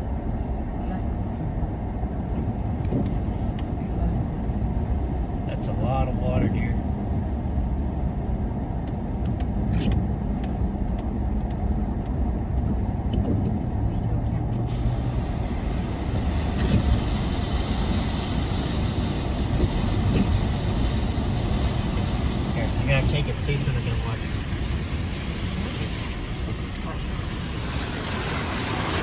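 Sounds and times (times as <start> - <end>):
car engine and road rumble: 0.0 - 29.0
water spraying hiss: 14.7 - 29.0.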